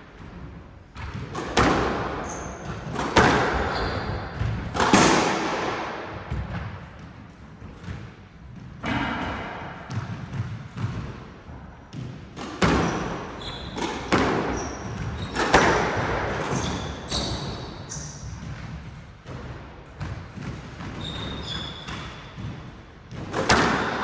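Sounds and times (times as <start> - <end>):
racquet hitting squash ball: 0.0 - 24.0
court shoes squeaking on floor: 0.2 - 5.2, 11.9 - 24.0
ball hitting wall with echo: 0.2 - 24.0.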